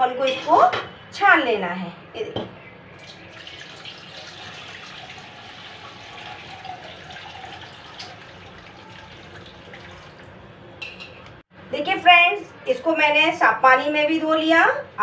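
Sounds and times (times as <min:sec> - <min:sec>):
water pouring through colander: 0:03.0 - 0:10.6.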